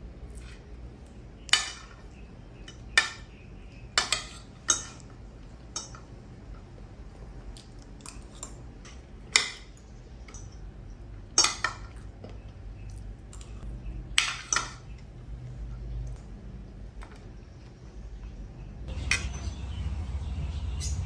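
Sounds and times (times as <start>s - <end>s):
faint low hum: 0.0s - 21.0s
cutlery clinking on a plate: 1.5s - 2.0s, 4.0s - 5.1s, 14.2s - 14.9s.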